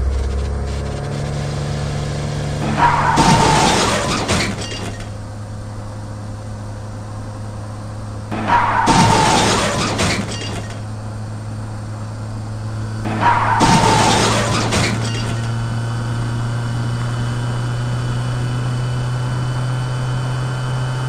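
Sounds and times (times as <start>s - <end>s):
steady low hum: 0.0s - 2.8s
car crashing into crash cushion: 2.8s - 5.1s, 8.4s - 10.7s, 13.1s - 15.4s.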